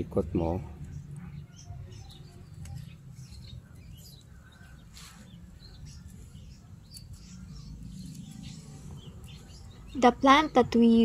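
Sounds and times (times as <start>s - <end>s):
bird chirps: 0.0s - 11.0s
leaf rustling: 4.8s - 9.4s.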